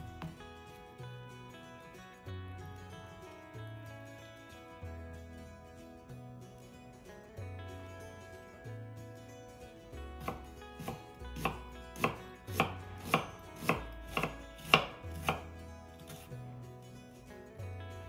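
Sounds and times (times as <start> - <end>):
knife slicing onion on board: 10.2 - 16.3.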